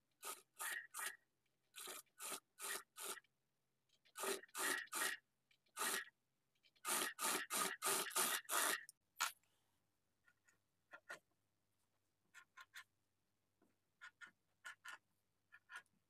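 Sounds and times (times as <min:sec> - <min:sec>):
sewing machine stitching: 0:00.2 - 0:03.2, 0:04.1 - 0:06.1, 0:06.8 - 0:08.9.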